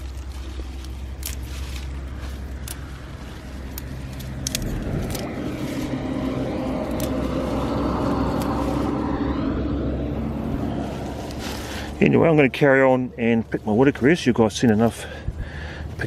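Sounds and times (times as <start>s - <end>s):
plant stems snapping and rustling: 0.0s - 9.1s, 10.4s - 12.0s
car passing: 0.0s - 13.2s.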